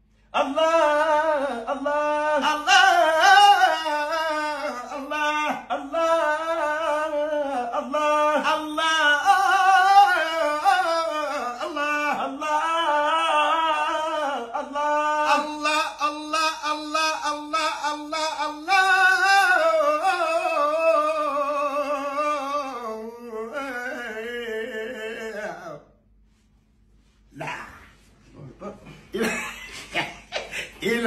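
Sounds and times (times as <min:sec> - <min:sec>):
man singing devotional chant: 0:00.3 - 0:25.9, 0:30.6 - 0:31.0.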